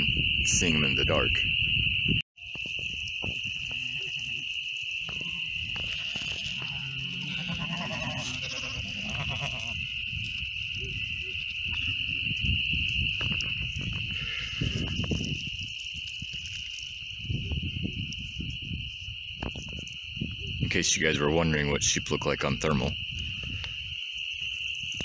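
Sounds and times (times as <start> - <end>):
high-pitched night chorus: 0.0 - 16.3
sheep bleating: 3.6 - 4.4, 5.1 - 9.8.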